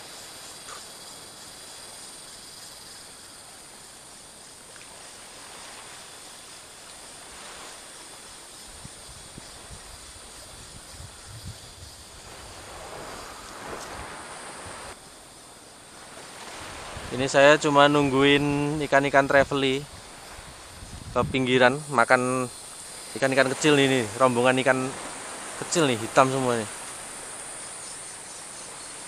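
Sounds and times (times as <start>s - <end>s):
small waves washing on shore: 0.0s - 29.0s
wind: 0.0s - 29.0s
wind buffeting on microphone: 8.6s - 15.0s, 16.5s - 17.3s, 18.0s - 21.8s.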